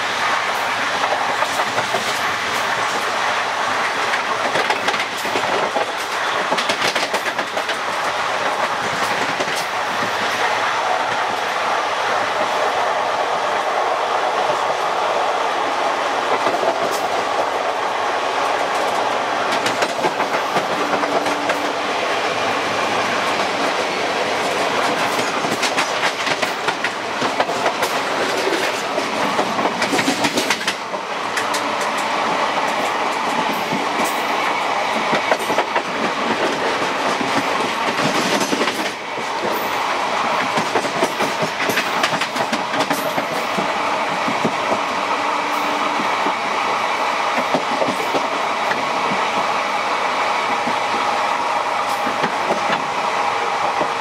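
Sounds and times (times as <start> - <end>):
train coaches rumbling and rattling: 0.0 - 54.0
wheels clicking over rail joints: 24.4 - 34.2, 35.0 - 44.8.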